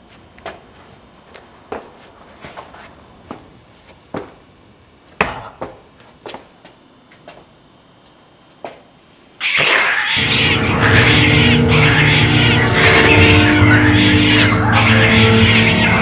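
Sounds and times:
harsh cat-like screech: 9.4s - 16.0s
music: 9.6s - 16.0s.

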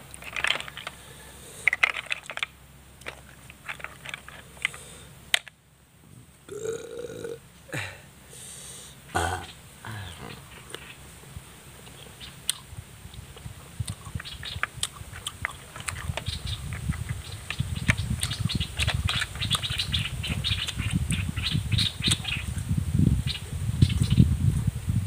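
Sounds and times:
person chewing wetly: 13.4s - 17.2s.

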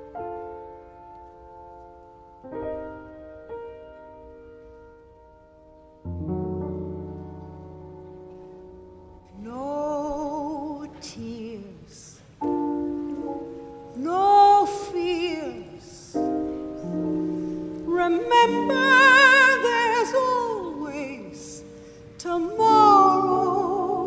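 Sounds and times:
piano chords: 0.0s - 24.0s
woman singing a slow ballad: 9.4s - 12.3s, 13.9s - 16.4s, 17.5s - 24.0s.

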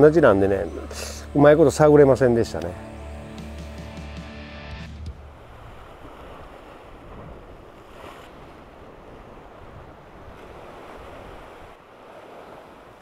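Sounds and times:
wind on microphone: 5.1s - 13.0s
surf washing against rocks: 5.2s - 13.0s.

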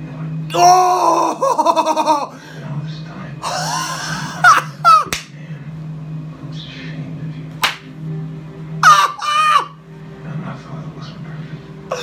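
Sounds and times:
man screaming: 0.5s - 1.5s, 8.8s - 9.8s
sharp hand smacks: 5.1s - 5.4s, 7.6s - 7.9s.

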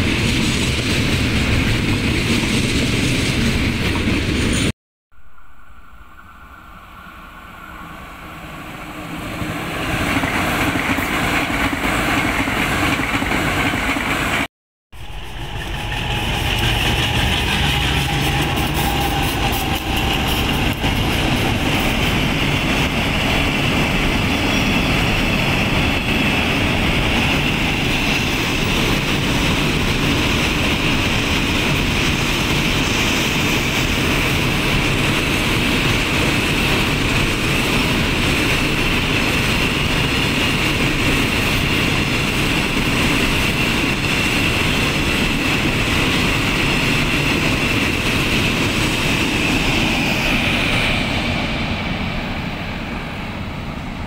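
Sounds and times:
diesel locomotive engines: 0.0s - 54.0s
electric train passing: 0.0s - 54.0s
freight wagons rolling on rails: 15.0s - 26.3s.

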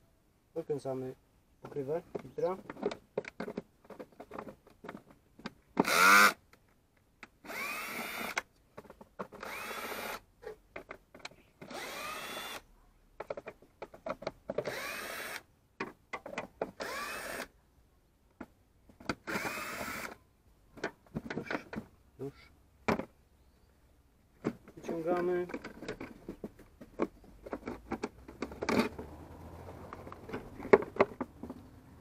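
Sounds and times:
small clicks and knocks: 1.6s - 7.4s, 8.3s - 9.5s, 10.4s - 11.7s, 13.2s - 14.7s, 15.8s - 16.8s, 24.4s - 29.1s, 29.9s - 31.7s
cordless drill whirring: 5.8s - 6.4s, 7.4s - 8.4s, 9.4s - 10.2s, 11.6s - 12.6s, 14.6s - 15.5s, 16.8s - 17.5s, 19.2s - 20.2s.

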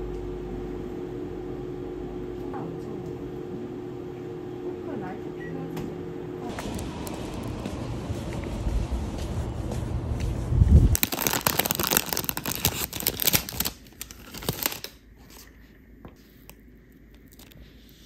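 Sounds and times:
low outdoor rumble: 0.0s - 11.0s
wrapper torn and crumpled: 10.9s - 15.0s.

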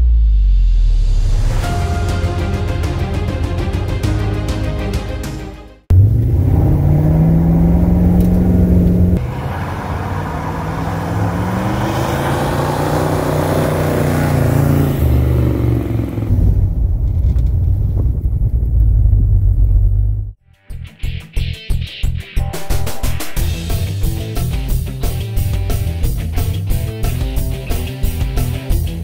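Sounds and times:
car driving past: 5.9s - 16.8s
car engine from inside cabin: 5.9s - 17.5s
car engine revving: 5.9s - 18.0s.

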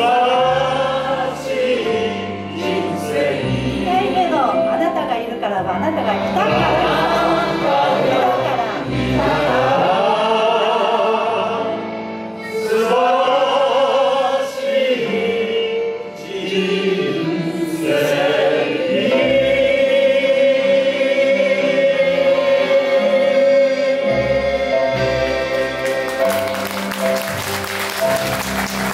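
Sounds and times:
group singing in unison: 0.0s - 4.0s, 6.4s - 26.2s
live accompaniment: 0.0s - 28.9s
audience applause: 25.4s - 28.9s.

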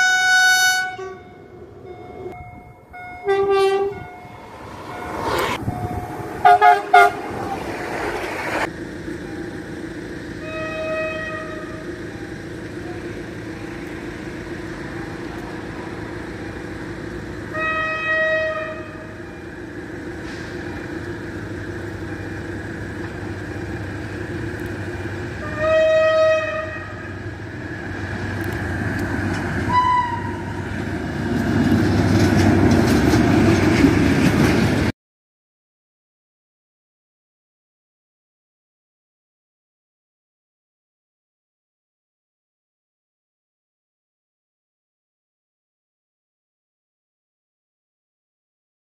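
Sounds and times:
higher horn toot: 0.0s - 1.5s, 2.9s - 4.5s, 6.4s - 7.3s, 10.4s - 11.9s, 17.5s - 19.1s, 25.4s - 27.2s, 29.7s - 30.6s
locomotive horn blasts: 0.0s - 5.0s, 5.7s - 7.3s, 10.4s - 11.9s, 17.5s - 19.3s, 25.4s - 27.2s, 29.7s - 30.6s
train rumble: 0.0s - 34.9s.

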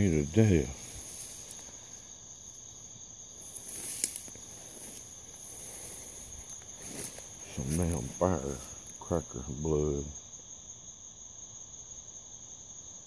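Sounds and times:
soft hiss: 0.0s - 10.2s
insects trilling: 0.0s - 13.0s.

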